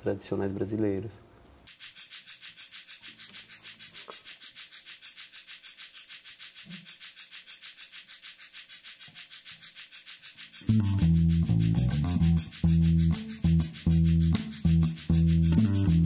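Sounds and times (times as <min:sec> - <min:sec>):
synthesizer hissing noise pulse: 0:01.7 - 0:16.0.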